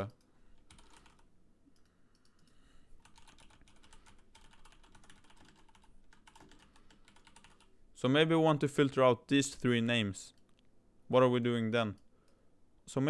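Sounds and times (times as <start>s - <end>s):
typing on a keyboard: 0.0s - 7.7s.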